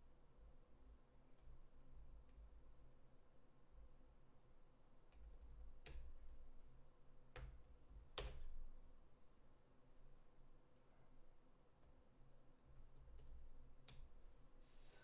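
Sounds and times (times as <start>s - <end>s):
faint low hum: 0.0s - 15.0s
computer keyboard keystrokes: 5.1s - 6.4s, 7.3s - 8.6s, 12.6s - 14.2s.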